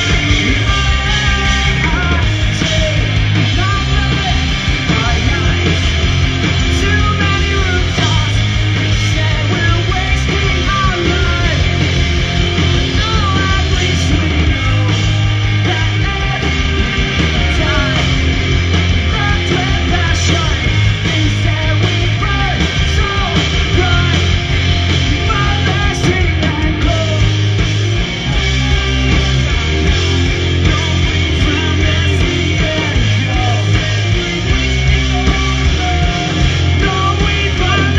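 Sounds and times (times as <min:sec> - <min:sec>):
rock band playing live: 0:00.0 - 0:37.9
person singing: 0:25.0 - 0:37.9.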